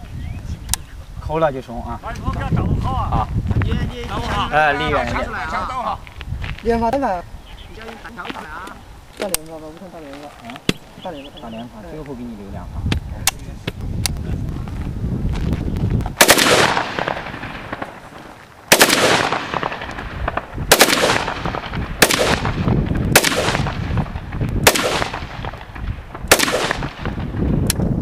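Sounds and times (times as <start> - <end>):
rifle shots echoing: 16.2 - 27.5.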